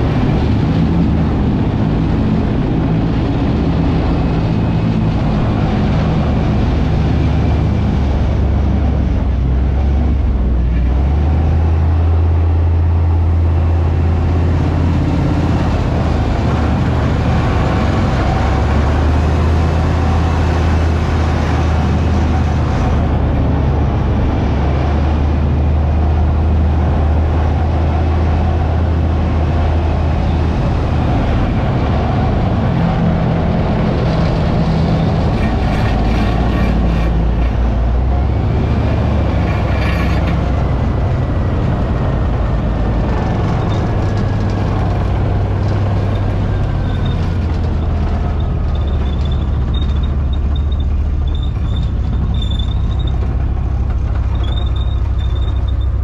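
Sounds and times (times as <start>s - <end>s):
tank diesel engine droning: 0.0s - 56.0s
sharp clatter: 33.6s - 37.9s, 39.2s - 41.0s, 43.0s - 56.0s.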